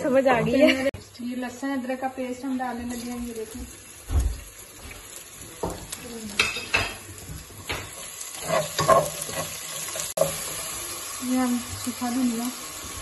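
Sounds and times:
onions sizzling in a pot: 0:00.0 - 0:13.0
spatula scraping a pot: 0:07.8 - 0:11.0.

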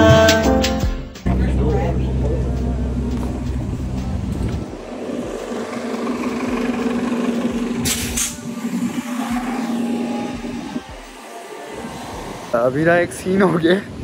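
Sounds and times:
bus engine hum: 0:01.2 - 0:14.0
compressed air hiss: 0:07.8 - 0:08.6.

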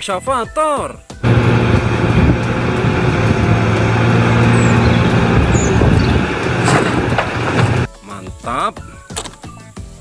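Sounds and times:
excavator diesel engine drone: 0:01.2 - 0:07.9.

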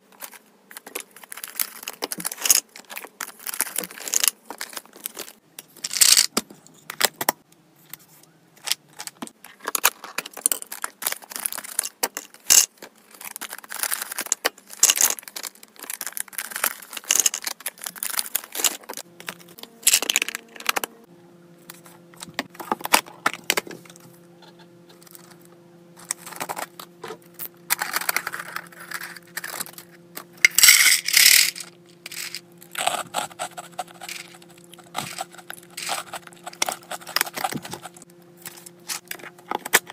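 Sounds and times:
pet treats rattling in plastic containers: 0:00.2 - 0:06.3, 0:09.0 - 0:20.9, 0:27.7 - 0:39.9.

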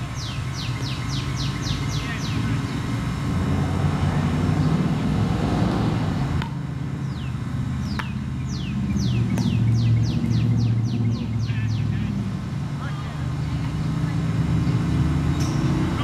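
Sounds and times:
songbird whistling: 0:00.0 - 0:02.8, 0:07.0 - 0:11.9
traffic engines humming: 0:00.0 - 0:16.0.

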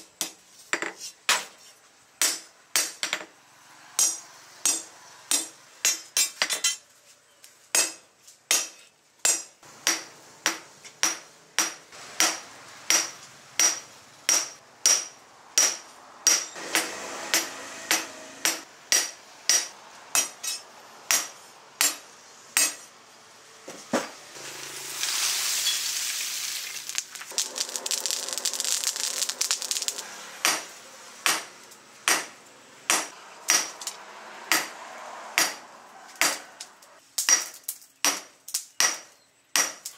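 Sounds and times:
hammer striking metal on anvil: 0:04.0 - 0:06.7, 0:07.8 - 0:22.0, 0:22.6 - 0:22.9, 0:30.4 - 0:34.8, 0:35.4 - 0:35.6
loud hiss: 0:24.3 - 0:31.3.

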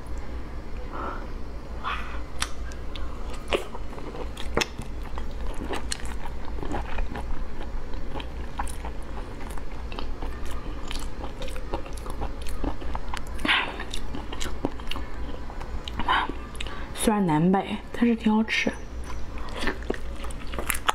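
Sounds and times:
low steady hum: 0:00.0 - 0:20.9
person chewing with wet smacks: 0:02.3 - 0:16.8, 0:19.0 - 0:20.9.

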